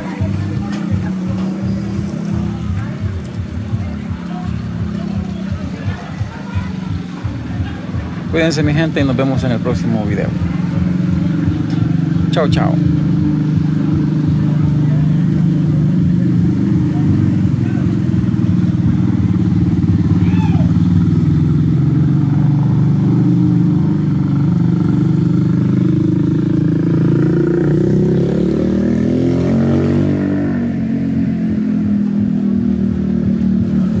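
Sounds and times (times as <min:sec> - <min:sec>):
motorcycle engine revving past: 0:09.0 - 0:34.0.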